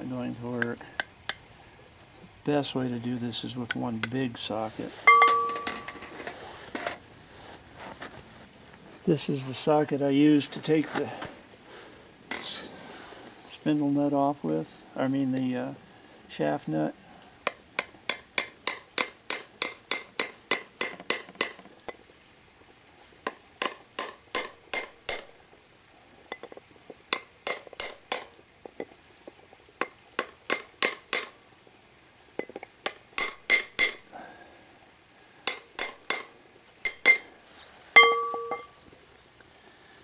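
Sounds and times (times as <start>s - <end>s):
hammer tapping metal: 5.1s - 6.1s, 17.5s - 21.6s, 32.4s - 34.1s, 35.5s - 37.3s, 38.0s - 38.8s
metal clank ringing: 5.1s - 6.2s, 38.0s - 38.8s.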